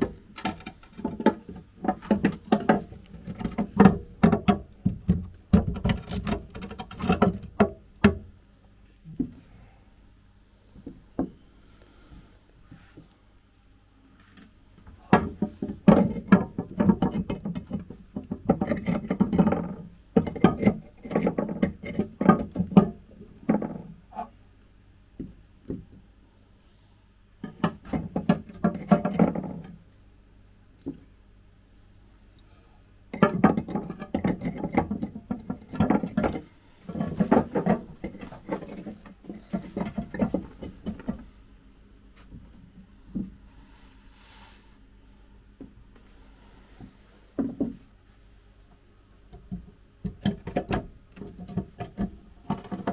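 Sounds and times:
lava rocks scraping and knocking: 33.2s - 41.2s.

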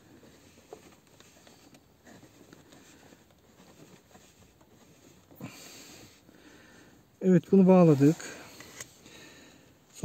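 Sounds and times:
hands twisting wires rustling: 0.0s - 6.5s.

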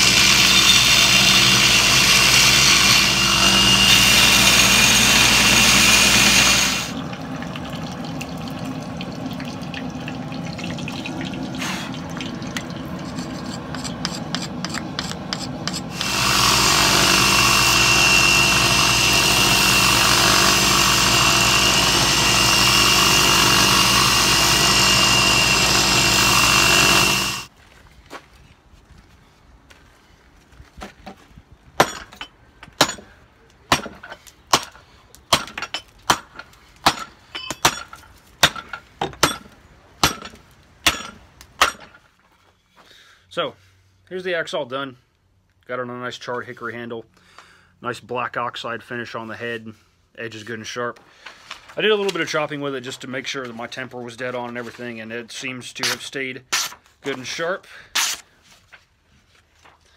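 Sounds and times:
belt grinder grinding steel: 0.0s - 7.0s, 12.8s - 27.5s.

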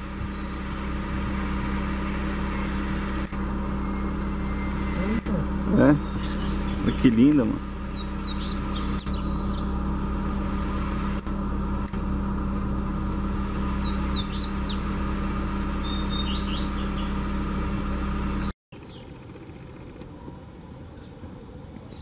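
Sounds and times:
bird singing: 0.0s - 0.8s, 3.8s - 11.6s, 12.3s - 14.9s, 15.7s - 17.2s, 18.4s - 19.6s
steady low hum: 0.0s - 22.0s.

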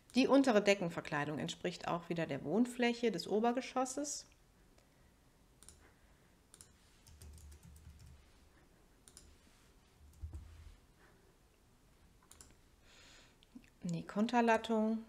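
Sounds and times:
computer mouse and keyboard clicks: 5.6s - 5.8s, 6.5s - 8.2s, 9.1s - 9.4s, 10.1s - 10.5s, 12.2s - 12.6s.

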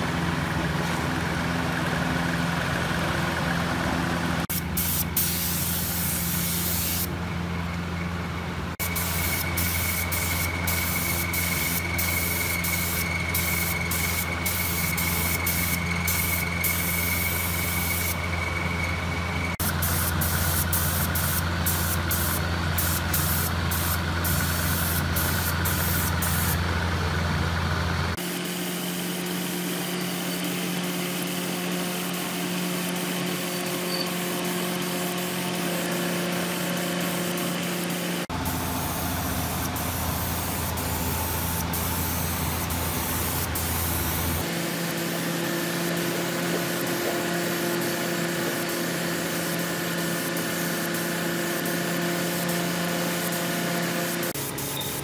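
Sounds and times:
low machine hum: 0.0s - 28.2s
spray gun hissing: 4.4s - 7.1s, 8.8s - 18.8s, 19.5s - 26.7s, 28.2s - 55.0s.

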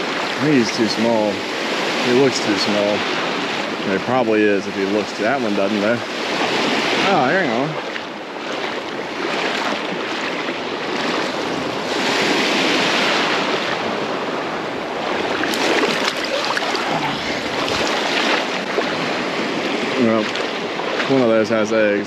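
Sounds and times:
wind on microphone: 0.0s - 21.6s
seawater sloshing and lapping: 5.8s - 21.4s.

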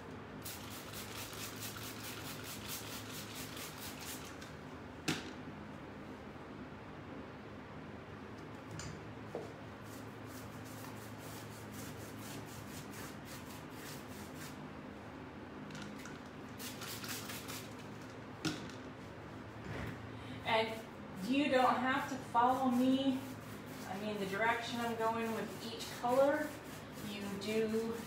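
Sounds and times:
low steady hum: 0.0s - 28.0s
paintbrush scratchy strokes: 9.8s - 14.6s, 22.0s - 28.0s.

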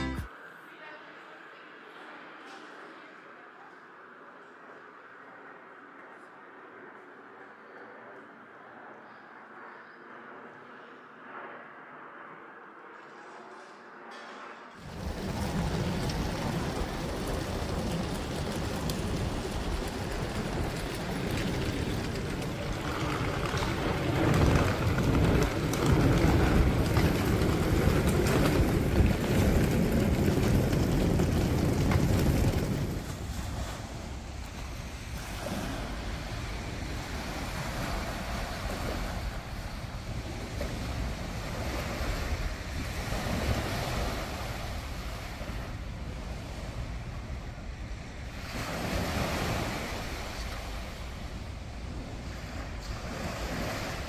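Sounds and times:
outdoor noise: 0.0s - 54.0s
river water against wall: 14.8s - 54.0s
wind on microphone: 14.8s - 54.0s.

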